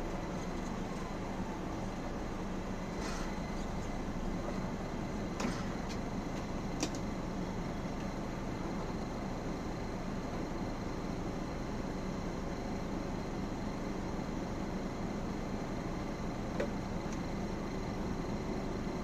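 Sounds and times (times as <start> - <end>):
bus diesel engine running: 0.0 - 19.0.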